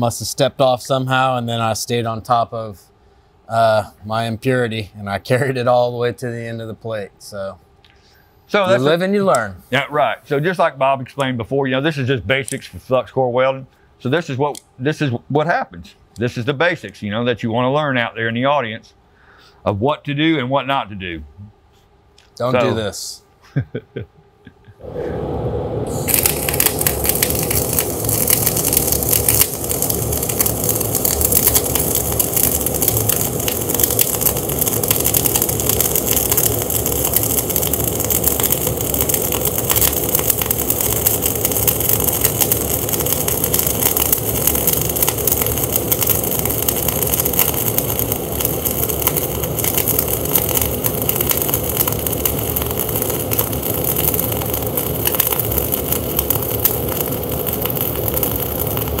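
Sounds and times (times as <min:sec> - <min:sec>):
welding arc crackling and sizzling: 0:00.0 - 0:02.7, 0:08.5 - 0:11.4, 0:24.8 - 0:59.0.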